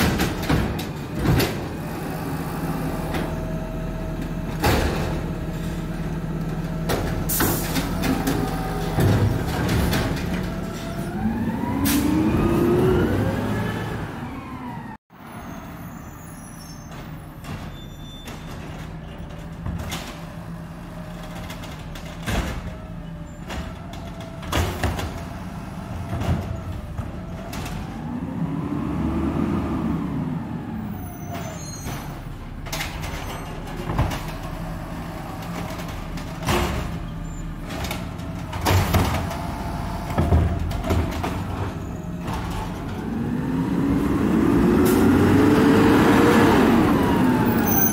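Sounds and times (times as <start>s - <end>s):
knocks and clanks: 0.0s - 1.8s, 4.2s - 5.4s, 6.4s - 11.0s, 21.2s - 25.4s, 26.0s - 28.0s, 31.4s - 34.7s, 35.3s - 43.2s
garbage truck engine revving: 0.0s - 14.3s, 32.4s - 47.9s.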